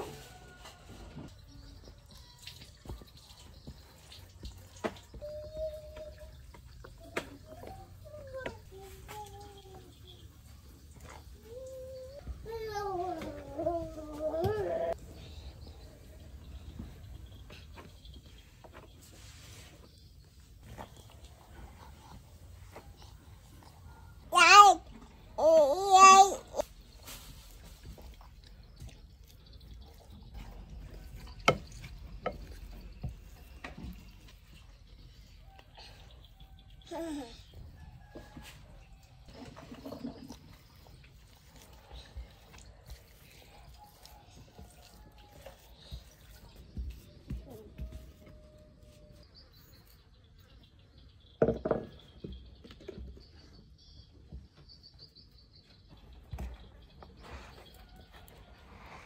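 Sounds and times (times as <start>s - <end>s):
spatula mashing sweet potato: 26.6s - 35.0s, 39.3s - 49.2s
wood knocking on ceramic bowl: 51.4s - 52.0s.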